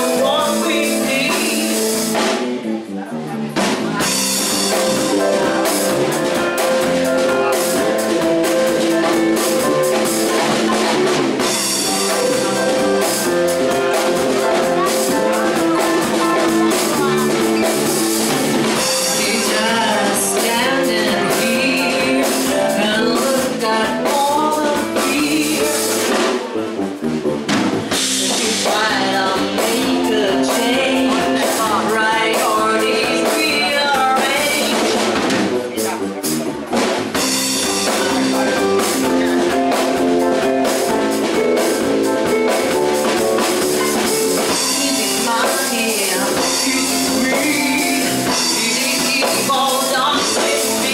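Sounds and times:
person singing into a microphone: 0:00.0 - 0:02.2, 0:07.4 - 0:26.2, 0:28.1 - 0:35.0, 0:43.1 - 0:50.9
drum kit: 0:00.0 - 0:50.9.

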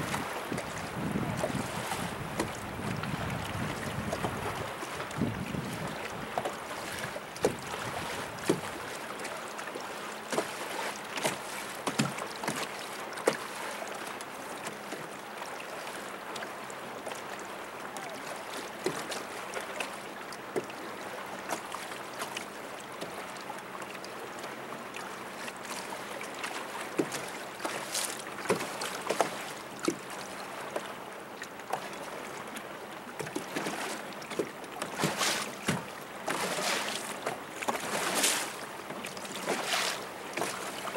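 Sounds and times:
water washing along boat hull: 0:00.0 - 0:40.9
small splashes: 0:05.8 - 0:15.0, 0:25.0 - 0:30.9, 0:33.2 - 0:40.9.

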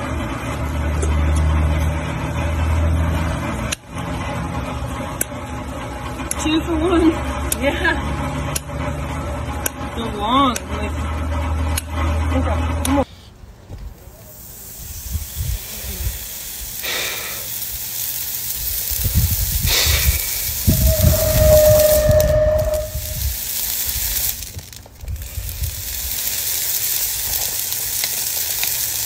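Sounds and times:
hoof hissing and sizzling: 0:00.0 - 0:29.0
whistle-like tone: 0:20.6 - 0:23.3.

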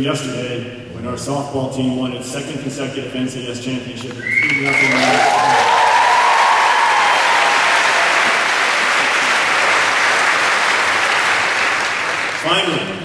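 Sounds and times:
audience applauding: 0:04.2 - 0:12.9.

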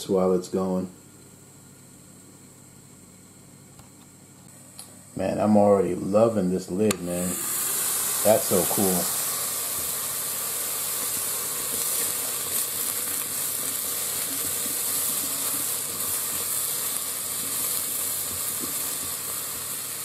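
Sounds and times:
mushrooms sizzling in oil: 0:07.0 - 0:20.0.

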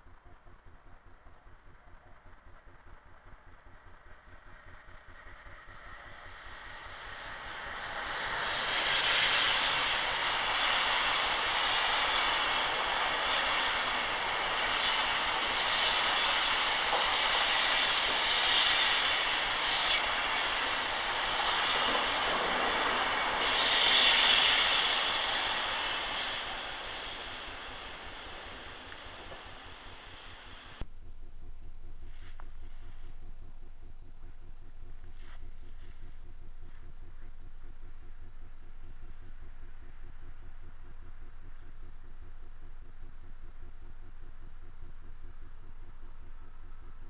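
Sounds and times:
train wheels rushing on rails: 0:04.6 - 0:30.8.

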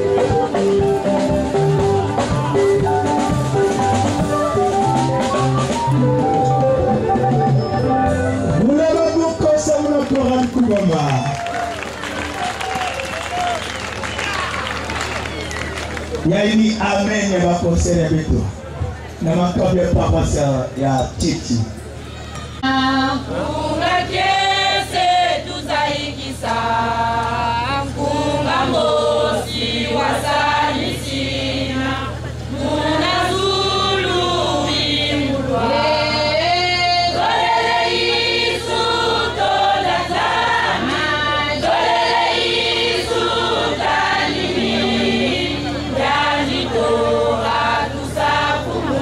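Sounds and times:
steady low hum: 0:11.5 - 0:49.0
women's choir singing: 0:22.6 - 0:49.0.

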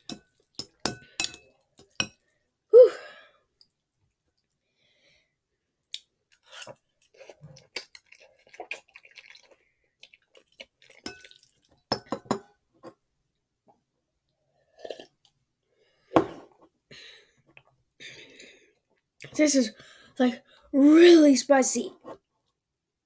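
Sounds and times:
chewing: 0:05.9 - 0:11.8.

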